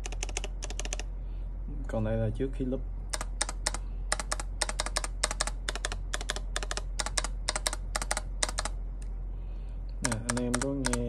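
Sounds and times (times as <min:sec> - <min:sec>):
mechanical keyboard key clacks: 0:00.0 - 0:01.0, 0:03.1 - 0:08.8, 0:10.0 - 0:11.0.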